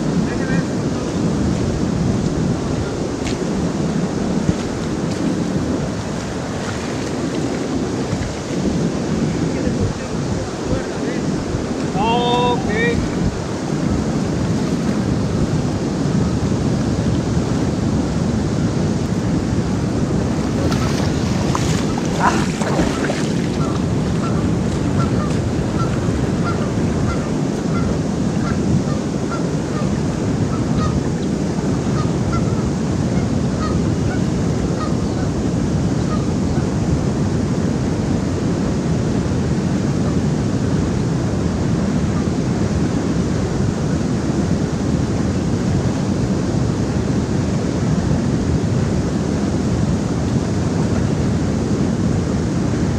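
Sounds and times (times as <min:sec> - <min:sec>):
river water rushing over weir: 0:00.0 - 0:37.0
wind on microphone: 0:00.0 - 0:52.9.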